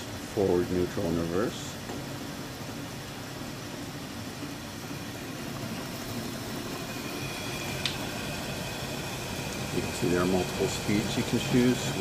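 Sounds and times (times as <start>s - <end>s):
lathe motor humming: 0.0s - 12.0s
faint high whine: 4.4s - 12.0s.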